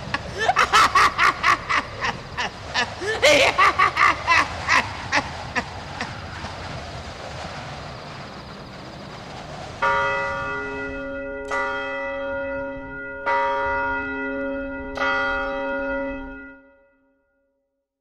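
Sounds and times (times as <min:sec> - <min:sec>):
steady rushing hiss: 0:00.0 - 0:11.4
bell tolling: 0:09.8 - 0:16.9.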